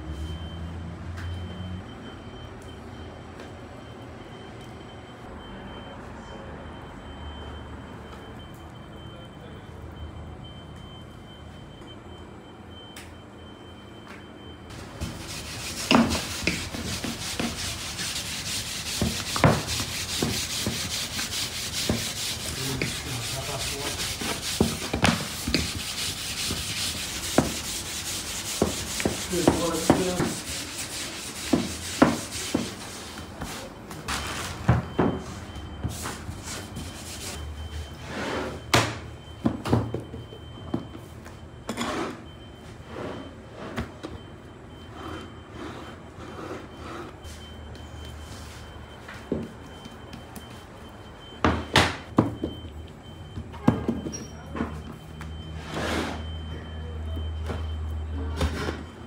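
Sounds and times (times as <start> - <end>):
rolling pin rubbing dough: 14.8 - 33.7.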